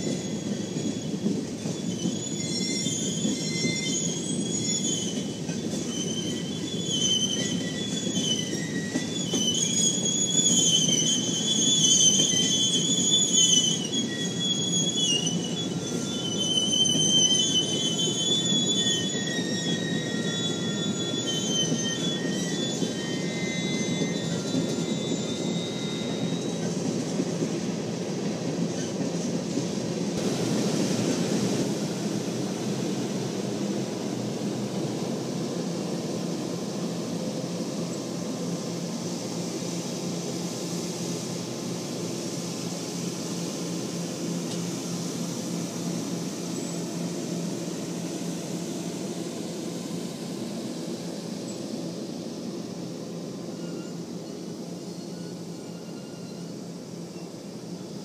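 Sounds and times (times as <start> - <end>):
high-pitched wheel squeal: 0.0 - 26.9, 53.4 - 57.9
train wheels rumbling on rails: 0.0 - 58.0.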